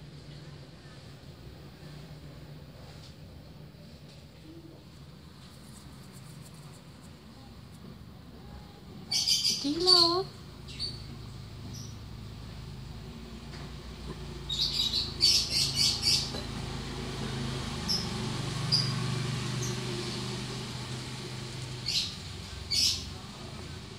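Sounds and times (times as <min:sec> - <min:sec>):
steady low hum: 0:00.0 - 0:14.0
small birds chirping: 0:08.4 - 0:12.1, 0:14.3 - 0:23.9.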